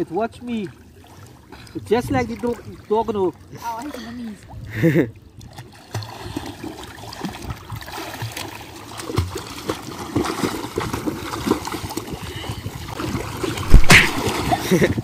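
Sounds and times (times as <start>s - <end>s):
children splashing in water: 3.5s - 15.0s.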